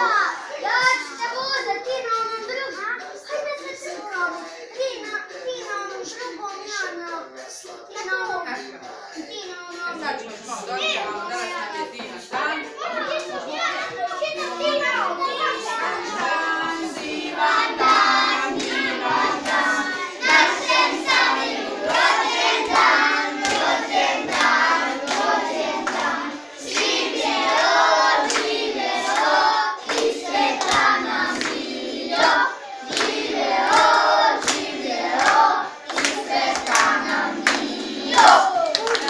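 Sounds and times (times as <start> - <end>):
children singing together: 0.0 - 8.7, 12.6 - 39.0
clapping in time: 38.2 - 39.0.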